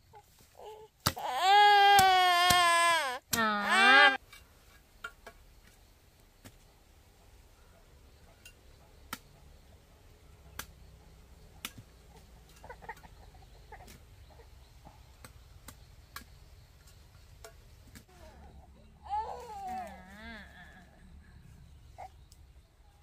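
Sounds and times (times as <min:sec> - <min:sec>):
chicken clucking: 0:12.2 - 0:14.7.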